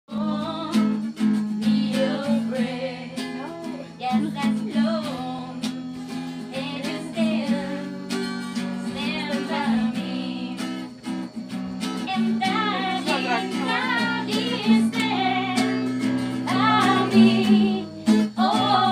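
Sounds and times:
strummed guitar: 0:00.1 - 0:18.9
person singing: 0:12.1 - 0:15.8, 0:16.4 - 0:18.9.

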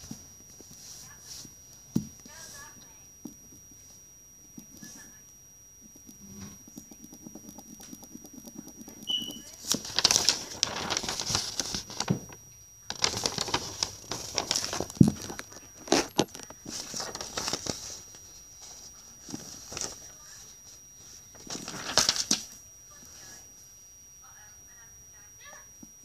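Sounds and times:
paper rustling and crinkling: 0:09.3 - 0:22.6.

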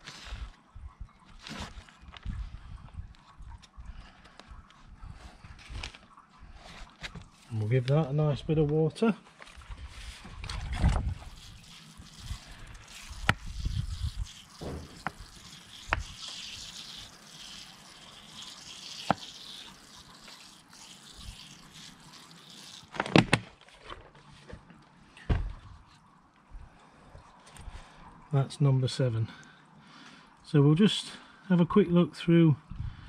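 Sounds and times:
water trickling onto compost: 0:05.5 - 0:24.9.

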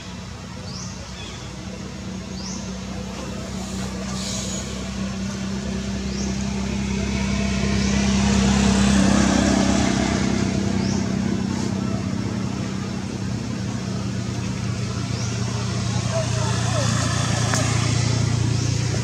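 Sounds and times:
vehicle engine hum: 0:00.0 - 0:19.0.

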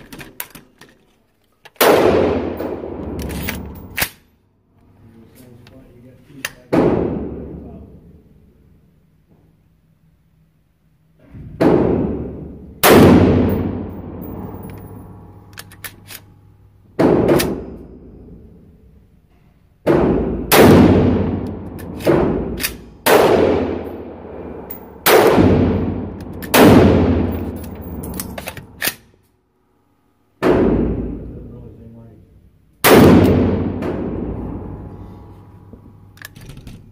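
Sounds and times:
echoing gunshots: 0:01.8 - 0:04.1, 0:06.7 - 0:07.7, 0:11.5 - 0:15.5, 0:16.9 - 0:18.6, 0:19.8 - 0:28.9, 0:30.4 - 0:31.5, 0:32.8 - 0:35.7.

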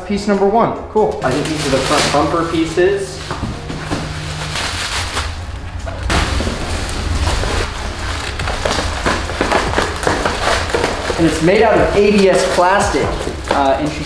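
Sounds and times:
plastic packaging crinkling: 0:01.2 - 0:14.0.

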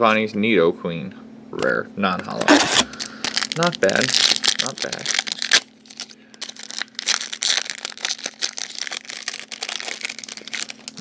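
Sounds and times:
foil wrapper crinkling and tearing: 0:02.5 - 0:11.0.

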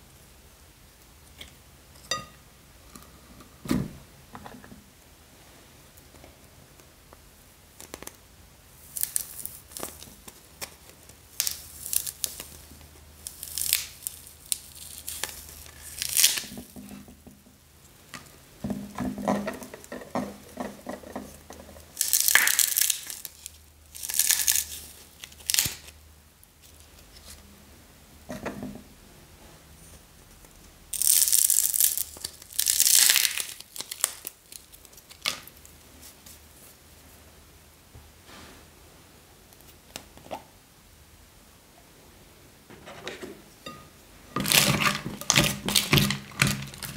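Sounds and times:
clay balls tearing apart: 0:08.8 - 0:17.0, 0:19.5 - 0:26.0, 0:30.9 - 0:35.8, 0:44.4 - 0:46.9.

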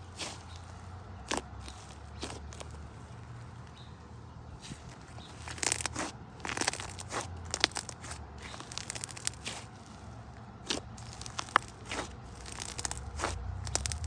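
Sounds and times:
slime crackling and popping: 0:05.3 - 0:09.7, 0:10.6 - 0:14.0.

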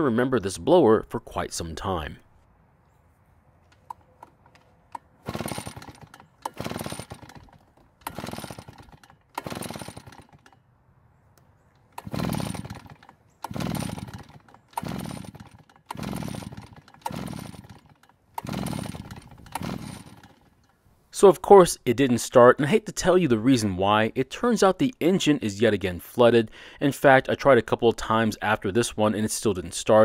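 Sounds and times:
recoil starter rope whirring: 0:03.6 - 0:10.6, 0:11.7 - 0:20.8
engine cranking without catching: 0:03.6 - 0:10.7, 0:11.4 - 0:21.3.

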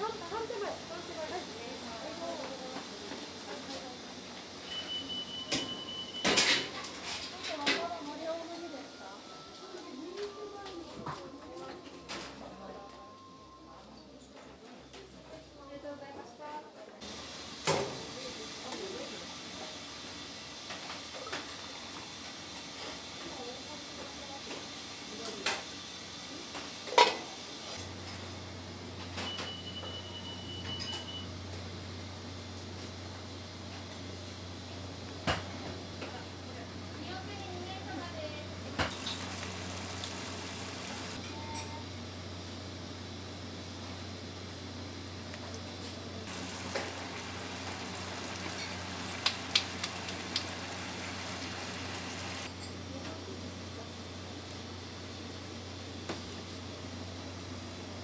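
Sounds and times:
hot oil sizzling: 0:17.0 - 0:23.2, 0:38.6 - 0:41.2, 0:46.2 - 0:52.7
steady hiss: 0:38.9 - 0:41.2, 0:46.3 - 0:52.5.

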